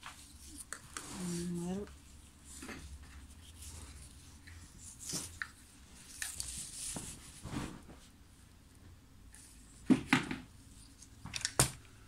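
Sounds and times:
small taps and rustles: 1.8 - 8.1.

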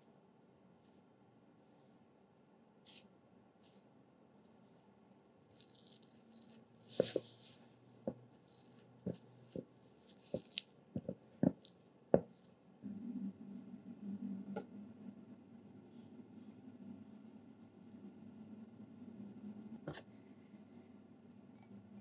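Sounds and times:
spatula stirring paste rustling: 5.4 - 12.8.

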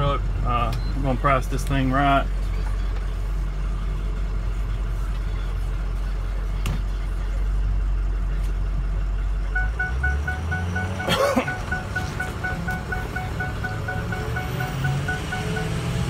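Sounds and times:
diesel truck engine rumble: 0.0 - 16.0
repeating high tone: 9.5 - 16.0.

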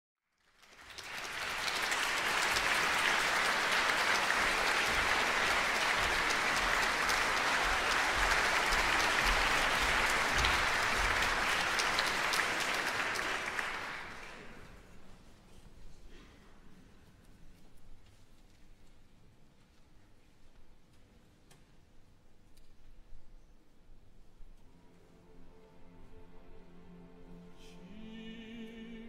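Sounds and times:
audience applause: 0.3 - 14.8.

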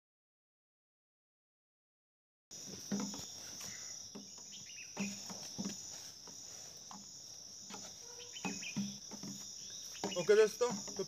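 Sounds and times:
high-pitched insect chorus: 2.5 - 11.0
knocks and rustles: 2.6 - 11.0.

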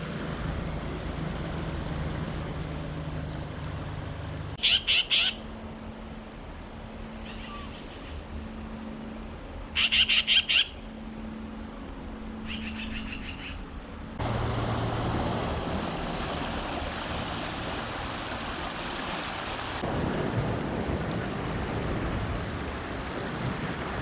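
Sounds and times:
magpie chattering calls: 4.6 - 5.4, 7.3 - 8.2, 9.8 - 10.8, 12.5 - 13.6
creek water rushing: 5.3 - 24.0.

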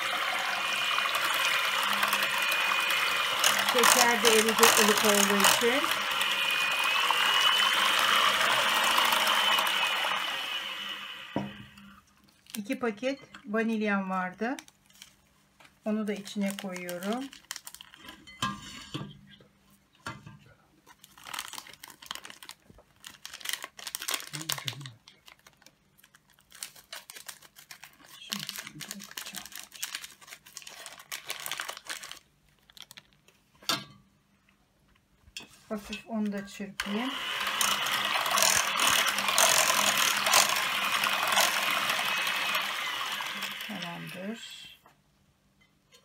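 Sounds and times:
electric hand mixer whirring: 0.0 - 11.8, 36.8 - 44.4
paper sachets crinkling: 1.0 - 5.9, 15.9 - 18.1, 21.0 - 33.3
beaters rattling against metal pot: 3.5 - 5.9.

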